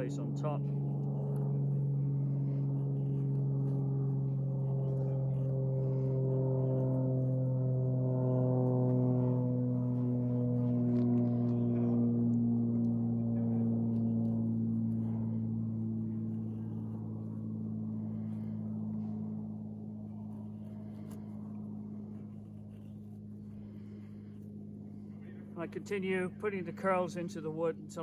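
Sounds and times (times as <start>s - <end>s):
low humming drone: 0.0s - 28.0s
knife shaving wood: 0.6s - 7.3s, 18.0s - 25.7s.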